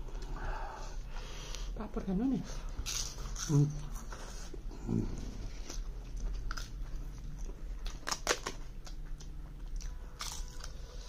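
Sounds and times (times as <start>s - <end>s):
chewing crunches: 5.6s - 11.0s.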